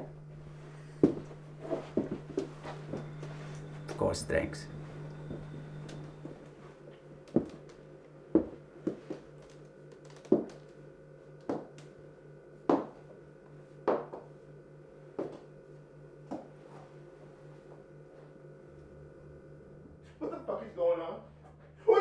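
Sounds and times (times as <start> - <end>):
faint low hum: 0.0 - 22.0
footsteps on wooden floor: 1.0 - 3.9, 7.3 - 9.6, 10.2 - 10.7.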